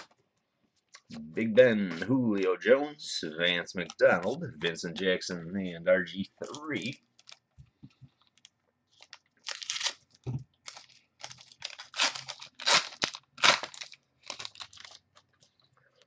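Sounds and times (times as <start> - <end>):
wrapper crinkling: 6.4 - 7.5, 8.1 - 16.0.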